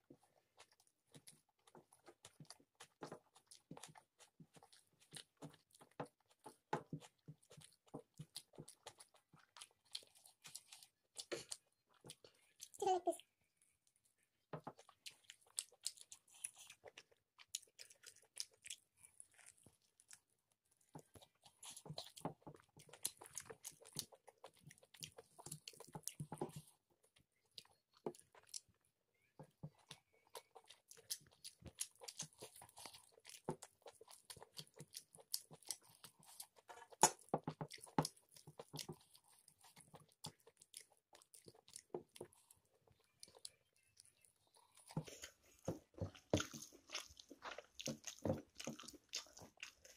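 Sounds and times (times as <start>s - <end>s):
person chewing food: 0.0s - 49.9s.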